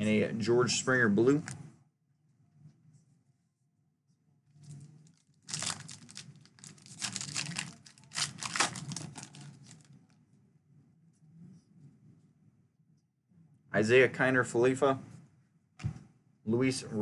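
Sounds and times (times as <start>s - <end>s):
wrapper torn and crinkled: 4.7s - 9.9s.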